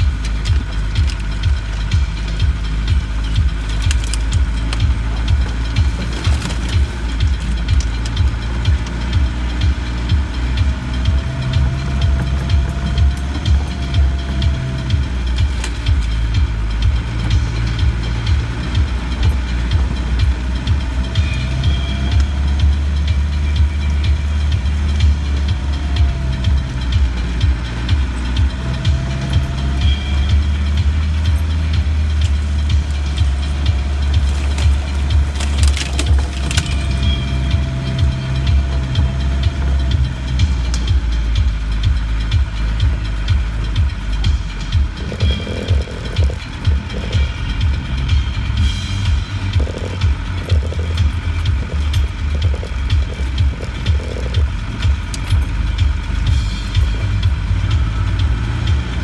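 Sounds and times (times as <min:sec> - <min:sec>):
vehicle engine droning: 0:00.0 - 0:59.0
vehicle body knocks and rattles: 0:34.1 - 0:37.2.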